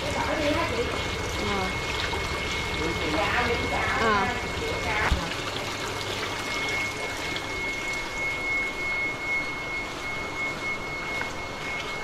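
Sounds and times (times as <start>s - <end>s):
water pouring into tanks: 0.0s - 12.0s.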